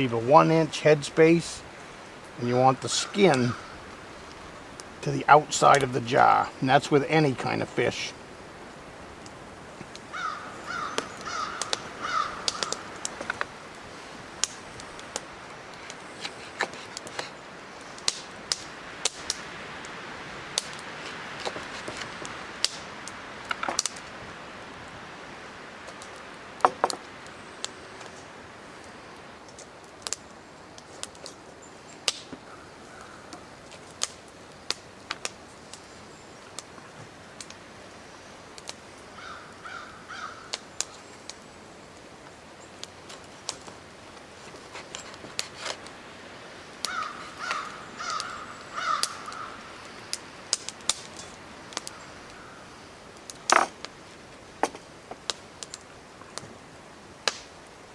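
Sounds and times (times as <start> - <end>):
crow cawing: 3.1 - 3.8, 10.1 - 13.0, 32.5 - 33.4, 39.2 - 40.6, 46.8 - 49.7, 51.9 - 52.7.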